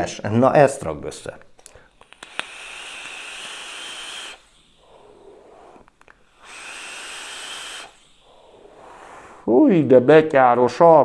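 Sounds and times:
vape drawing hiss: 1.9s - 9.6s
soft exhale: 2.6s - 9.6s.

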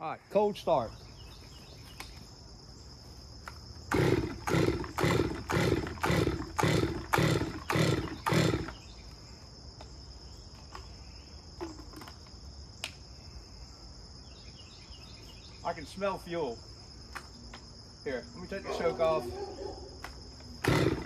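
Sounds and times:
crickets chirping: 0.0s - 21.0s
chainsaw starter rope pulls: 3.9s - 8.8s, 20.6s - 21.0s.

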